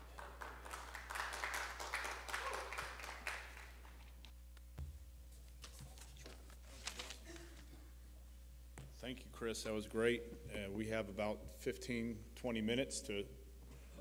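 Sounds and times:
steady low hum: 0:03.5 - 0:14.0.

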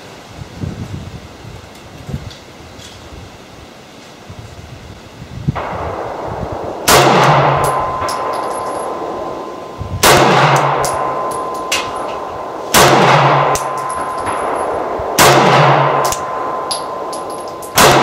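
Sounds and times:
pistol shots with echo: 0:05.6 - 0:18.0.

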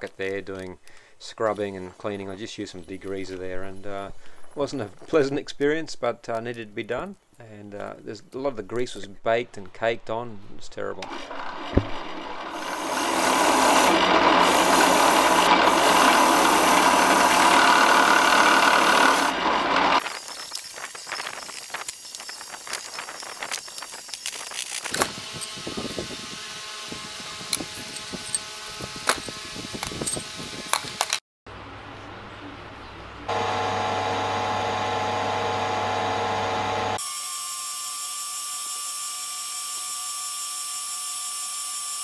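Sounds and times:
wire wheel scouring metal: 0:11.0 - 0:31.1
metal bearings clinking: 0:20.0 - 0:25.6, 0:27.5 - 0:31.2.

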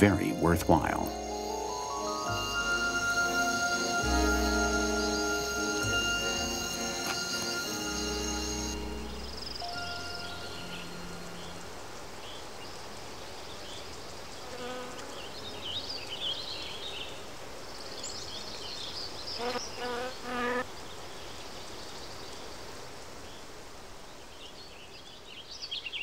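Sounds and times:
outdoor background noise: 0:00.0 - 0:26.0.

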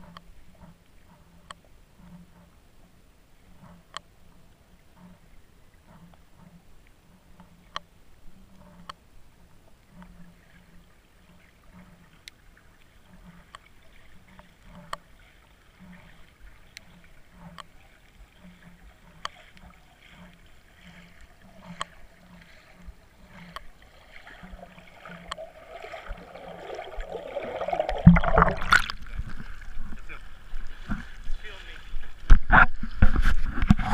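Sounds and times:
water splashing and knocking: 0:20.0 - 0:31.1.

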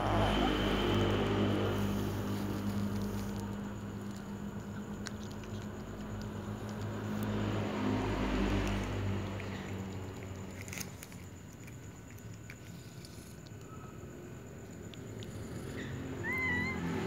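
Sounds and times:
steady low hum: 0:00.0 - 0:17.0
cat chewing with wet smacking: 0:00.8 - 0:13.7.

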